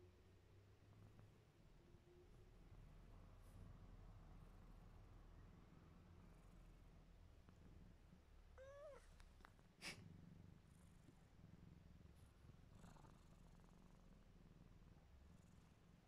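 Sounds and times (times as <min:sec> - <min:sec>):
cat purring: 0:00.0 - 0:16.0
soft cat meow: 0:08.6 - 0:09.2.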